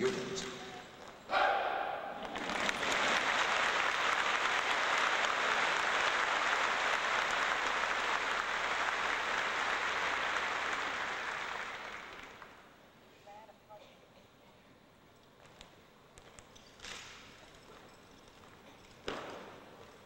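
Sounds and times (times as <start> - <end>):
audience applauding: 2.2 - 12.6.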